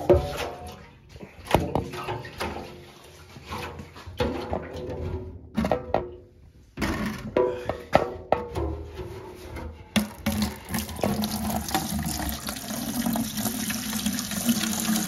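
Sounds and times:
liquid pouring from a fuel tank: 0:10.0 - 0:15.0.

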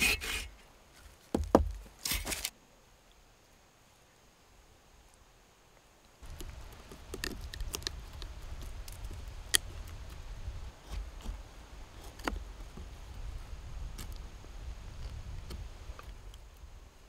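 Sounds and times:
wood cracking: 0:01.2 - 0:02.5, 0:06.2 - 0:11.4.

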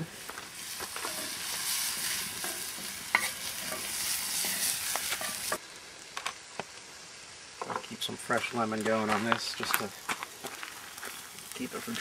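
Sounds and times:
food sizzling in a skillet: 0:00.0 - 0:12.0
utensil scraping a pan: 0:00.6 - 0:05.6.

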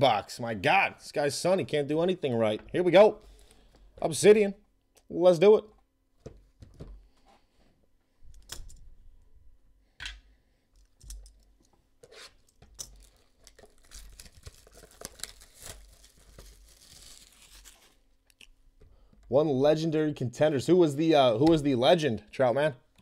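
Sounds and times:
card pack wrapper tearing: 0:12.8 - 0:18.0.

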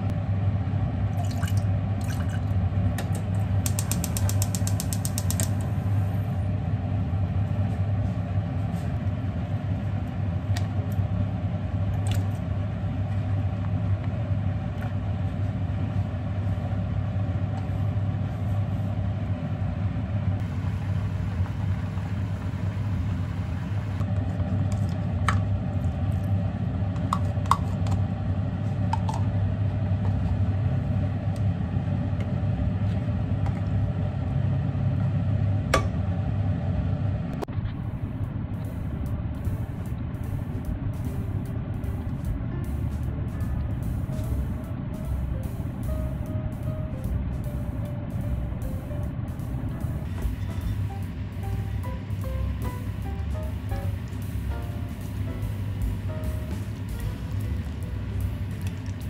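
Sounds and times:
low rumble with hum: 0:00.0 - 0:59.0
cooking clicks and taps: 0:03.0 - 0:05.6.

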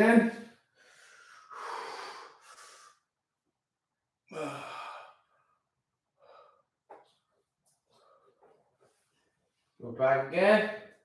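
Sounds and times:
man breathing out heavily: 0:00.8 - 0:03.0, 0:04.3 - 0:05.3
man sighing: 0:04.3 - 0:05.2.

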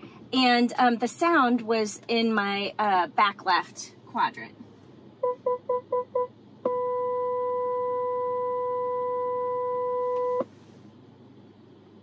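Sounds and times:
continuous electronic tone: 0:05.2 - 0:10.4
parking sensor beep: 0:05.2 - 0:10.5.

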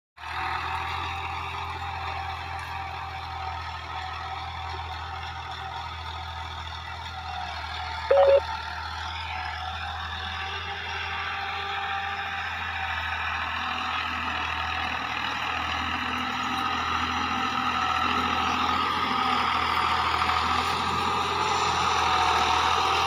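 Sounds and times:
tractor diesel engine running: 0:00.2 - 0:23.0
short loud beep: 0:08.1 - 0:08.4.

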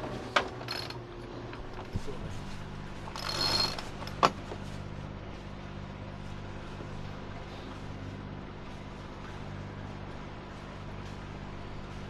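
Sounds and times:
winch ratcheting: 0:00.4 - 0:01.0, 0:03.0 - 0:04.4.

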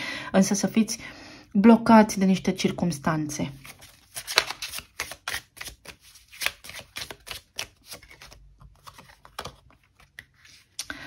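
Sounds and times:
cards being shuffled: 0:03.6 - 0:10.8.

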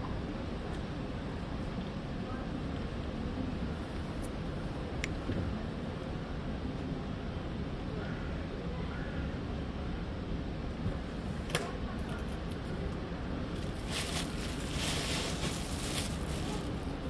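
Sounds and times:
low outdoor rumble: 0:00.0 - 0:17.0
rustling hiss: 0:13.5 - 0:17.0.

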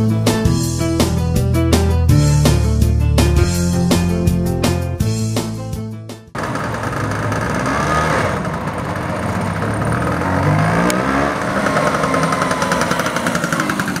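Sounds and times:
scooter engines running: 0:06.4 - 0:14.0
scooter passing by: 0:06.4 - 0:14.0.

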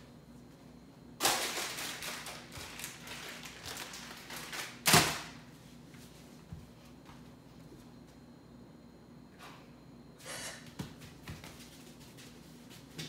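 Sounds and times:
plastic snack packet crinkling: 0:01.2 - 0:05.3.

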